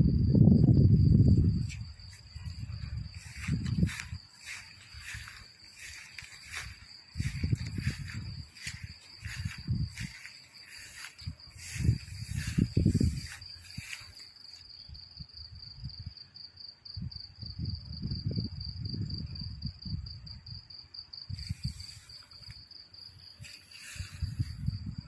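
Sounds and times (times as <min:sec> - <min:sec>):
crickets trilling: 0:00.0 - 0:25.0
grass rustling: 0:01.6 - 0:14.7, 0:21.4 - 0:24.8.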